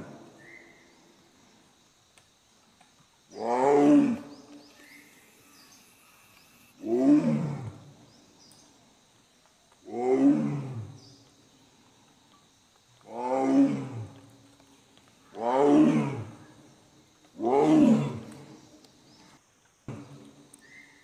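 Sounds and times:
tiger roaring: 6.8 - 7.8, 9.9 - 11.0, 13.1 - 14.2, 15.4 - 16.4, 17.4 - 18.5.

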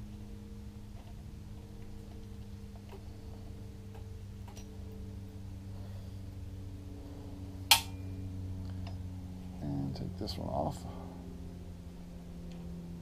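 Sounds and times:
low hum: 0.0 - 13.0
sharp metallic click: 7.7 - 8.0.

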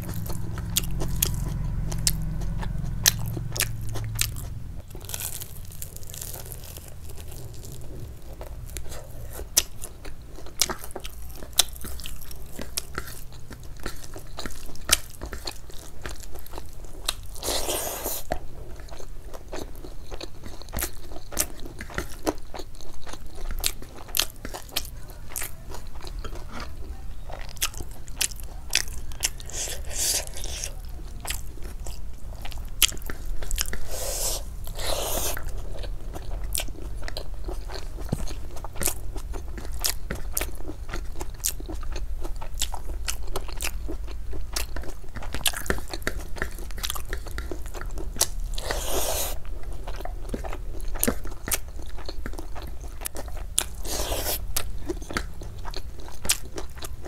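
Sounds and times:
low hum: 0.0 - 8.8
person chewing with wet mouth clicks: 27.4 - 57.0.

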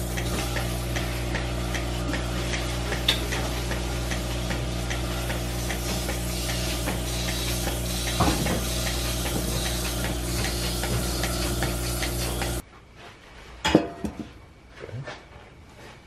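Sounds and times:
milking machine pump hum: 0.0 - 12.6.

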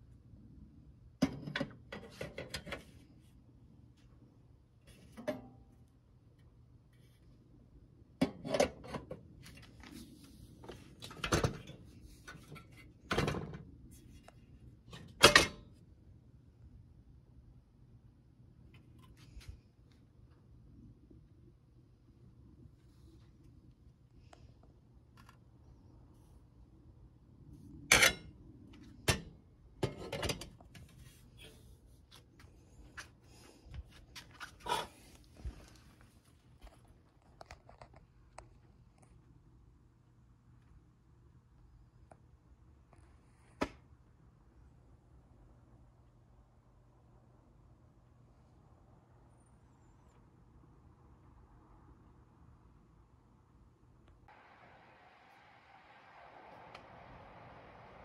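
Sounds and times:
metal stove parts clanking: 8.2 - 9.2, 11.0 - 13.6, 14.9 - 15.6, 27.9 - 28.3, 29.0 - 31.6.

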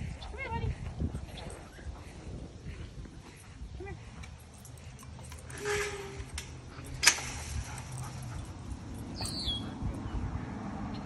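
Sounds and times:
metal gate latch clanking: 5.4 - 8.0.

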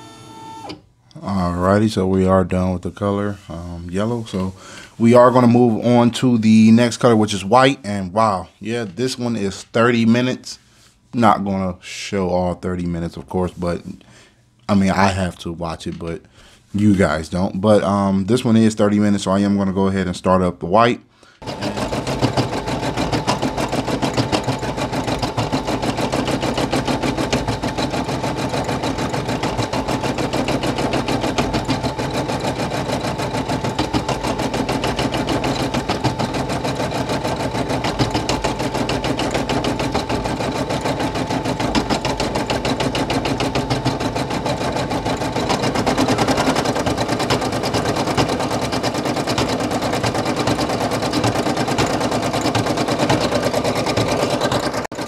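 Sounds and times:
embroidery machine stitching: 0.0 - 0.8, 21.4 - 55.0.

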